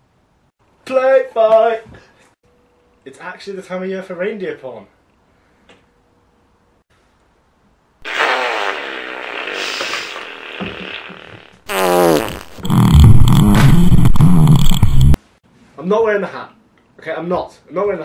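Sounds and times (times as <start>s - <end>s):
farts: 8.0s - 15.2s.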